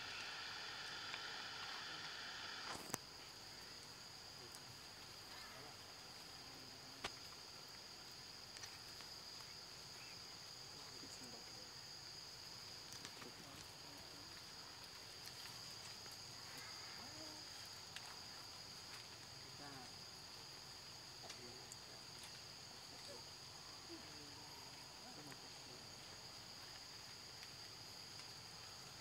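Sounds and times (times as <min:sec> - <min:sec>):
high-pitched insect drone: 0:00.0 - 0:07.0.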